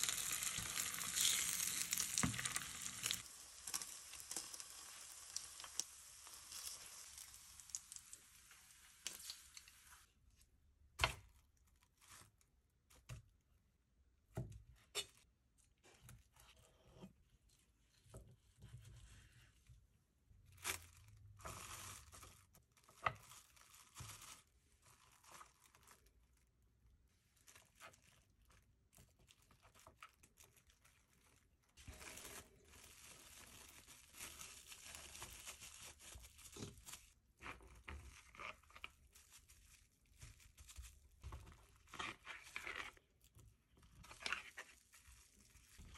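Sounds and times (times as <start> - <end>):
cling film crinkling: 0.0 - 10.1.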